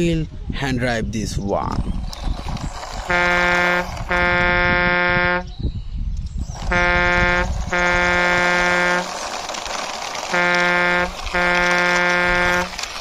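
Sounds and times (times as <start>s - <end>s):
truck horn blasts: 3.1s - 5.5s, 6.6s - 9.2s, 10.3s - 12.8s.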